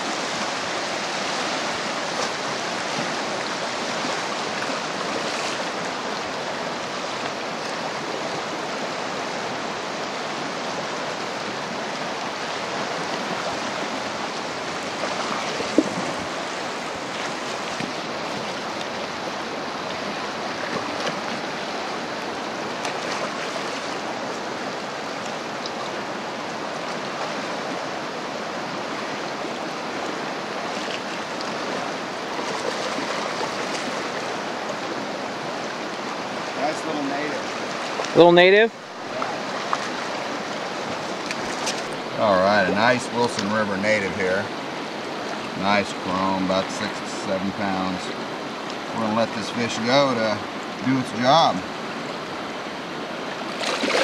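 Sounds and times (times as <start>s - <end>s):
fast-flowing river rushing: 0.0s - 54.0s.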